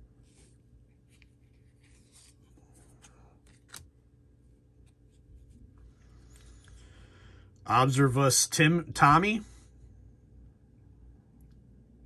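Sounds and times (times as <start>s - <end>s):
trading cards rustling: 0.3s - 4.0s.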